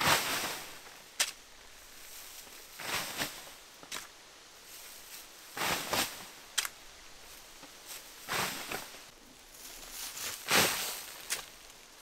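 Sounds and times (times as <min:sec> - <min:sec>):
shovel scraping and spattering sand: 0:00.0 - 0:04.1, 0:04.7 - 0:06.7, 0:07.9 - 0:09.1, 0:09.9 - 0:11.8.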